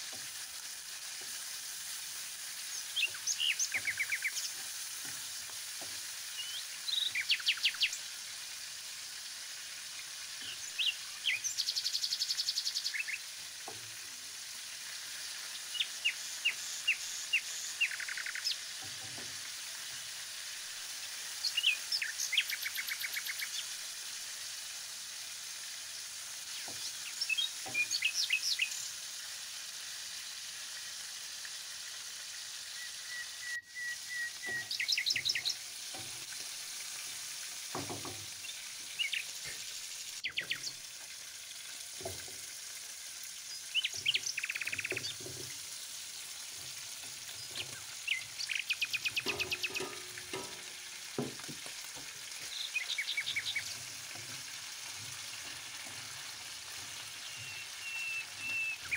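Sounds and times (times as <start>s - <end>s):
meat sizzling in oil: 0.0s - 58.9s
birds chirping trills: 2.6s - 5.4s, 6.2s - 8.0s, 15.7s - 18.6s, 26.5s - 28.9s, 32.7s - 36.3s, 37.7s - 39.6s, 40.2s - 40.8s, 43.3s - 51.4s, 52.0s - 54.4s, 55.4s - 58.9s.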